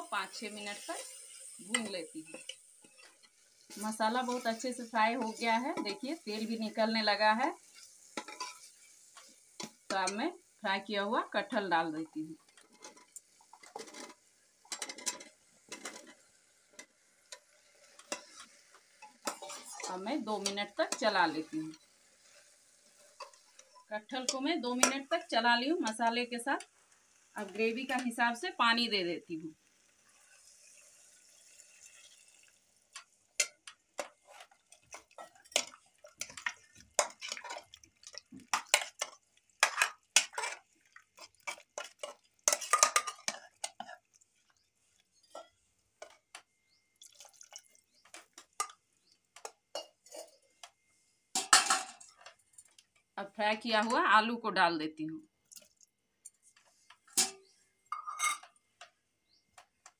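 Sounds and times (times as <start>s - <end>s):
water pouring into a pot: 0.0s - 10.6s, 29.5s - 45.8s, 46.7s - 49.4s, 55.4s - 56.0s
ladle stirring: 0.3s - 10.2s, 12.4s - 25.3s, 31.9s - 52.8s
metal ladle scraping a pot: 17.8s - 25.0s, 38.5s - 44.0s
metal spoon scraping steel bowl: 19.2s - 21.8s, 57.1s - 58.5s.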